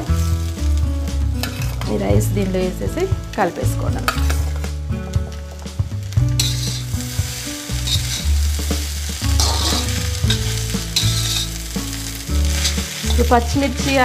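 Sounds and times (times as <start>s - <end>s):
food sizzling: 0.0s - 14.0s
spatula scraping a wok: 1.4s - 2.0s, 6.3s - 14.0s.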